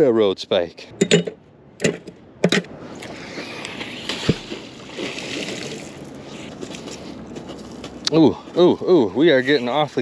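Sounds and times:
water sloshing: 2.9s - 8.0s.

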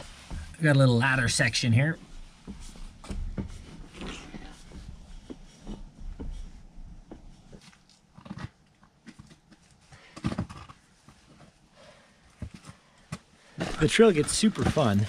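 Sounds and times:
footsteps on rock and dirt: 12.5s - 15.0s.

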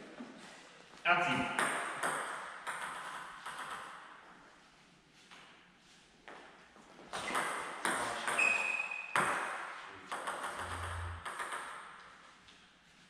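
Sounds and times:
table tennis ball bouncing: 1.4s - 4.0s, 7.1s - 12.1s.

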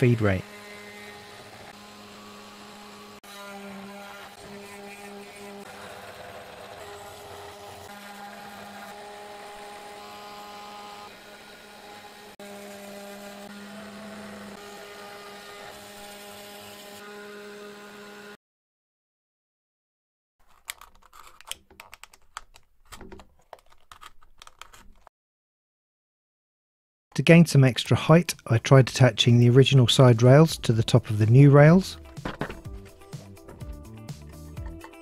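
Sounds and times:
spindle motor humming: 0.2s - 18.3s.

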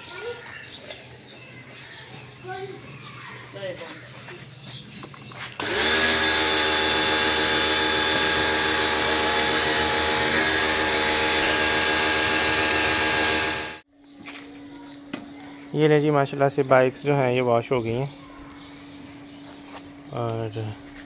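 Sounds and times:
pressure washer motor: 5.6s - 13.8s
water jet spraying wheel: 5.6s - 13.8s.

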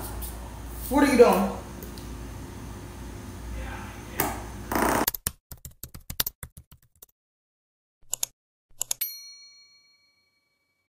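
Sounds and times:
rapid keyboard typing: 5.0s - 7.1s
bell-like notification ding: 9.0s - 10.9s.

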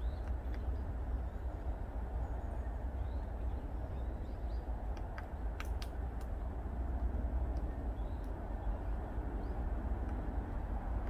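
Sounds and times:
steady low rumble: 0.0s - 11.0s
woodpecker pecking at wood: 4.9s - 6.4s.

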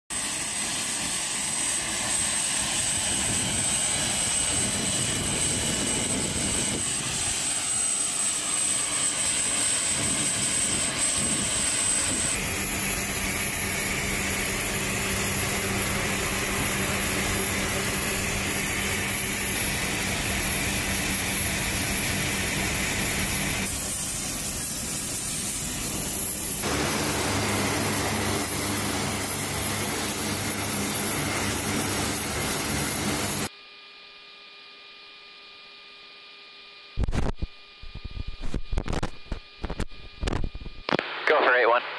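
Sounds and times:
turboprop engines droning: 0.1s - 33.5s.

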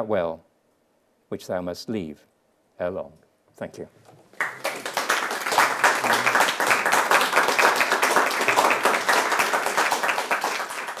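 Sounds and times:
audience clapping: 4.3s - 11.0s.

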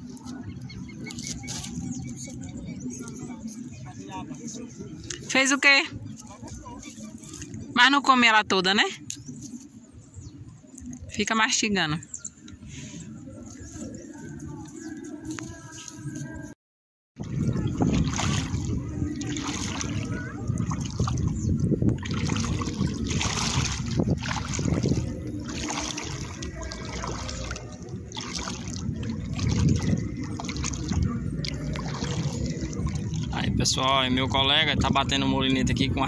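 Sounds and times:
water lapping and sloshing: 0.0s - 11.5s, 17.2s - 36.0s
wind on microphone: 17.2s - 36.0s.

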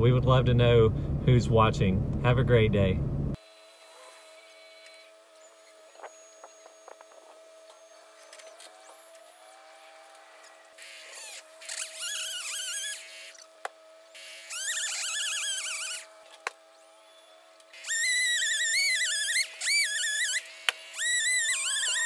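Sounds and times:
steady hum: 0.0s - 3.5s
motor running: 3.1s - 22.0s.

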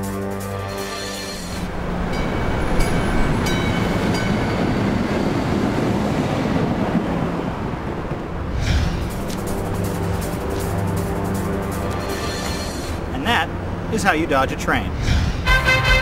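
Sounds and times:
streetcar wheels rumbling on rails: 0.0s - 16.0s
high wheel squeal tones: 0.6s - 5.5s, 11.5s - 14.0s.

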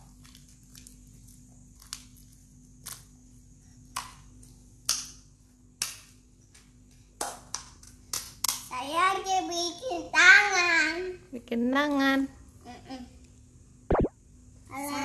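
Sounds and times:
hands slapping wet slime: 4.8s - 5.2s, 5.8s - 6.1s, 7.2s - 8.7s.

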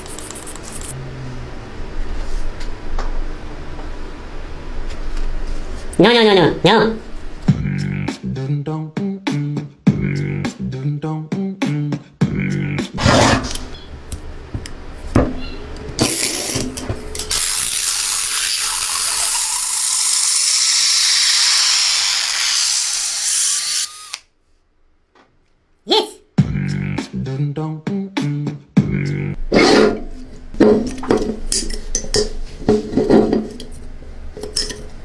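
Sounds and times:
beat with vocal sounds: 7.4s - 13.0s, 25.9s - 29.4s
cordless drill running: 17.3s - 24.2s.

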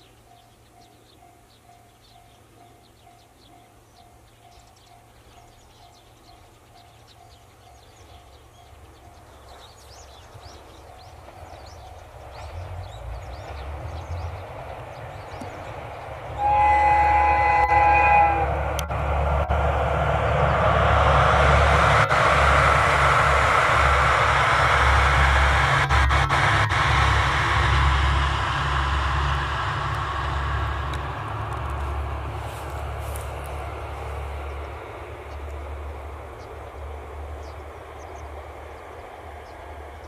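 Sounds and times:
diesel train engine rumble: 0.0s - 40.0s
train horn: 16.2s - 19.6s, 21.3s - 33.7s.

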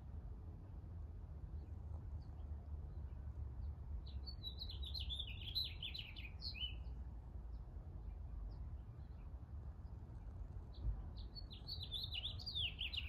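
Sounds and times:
songbird twittering: 4.2s - 6.8s, 11.2s - 13.0s
bird chirps: 11.2s - 13.0s.

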